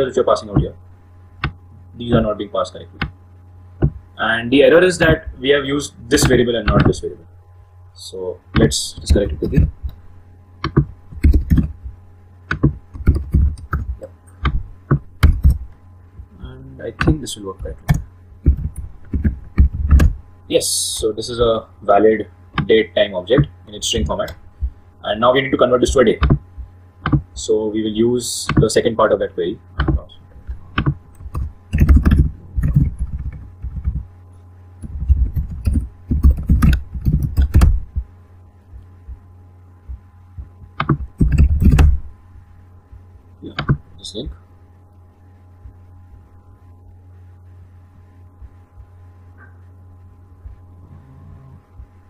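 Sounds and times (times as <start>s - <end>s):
faint steady hum: 0.0s - 52.0s
laptop keyboard typing: 8.6s - 10.0s, 10.6s - 11.8s, 12.5s - 15.7s, 17.0s - 20.2s, 29.8s - 34.0s, 34.8s - 38.0s, 40.4s - 42.0s.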